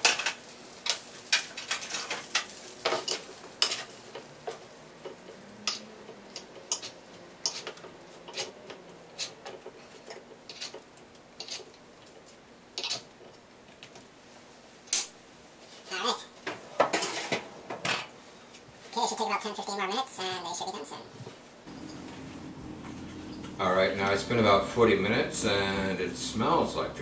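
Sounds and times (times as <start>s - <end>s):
fork scraping metal baking tray: 6.7s - 8.6s, 9.2s - 10.8s, 11.4s - 11.8s.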